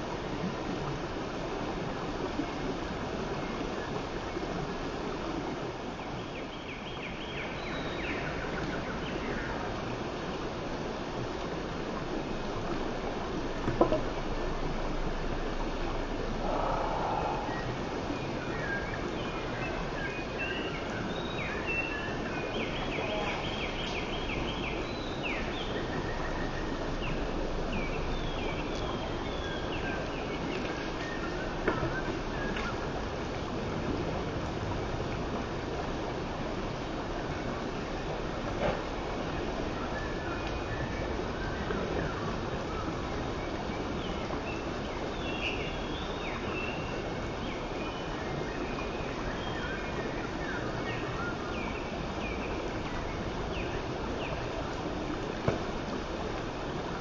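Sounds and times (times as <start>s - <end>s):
stream rushing over rocks: 0.0s - 57.0s
songbird chirping: 16.3s - 32.8s.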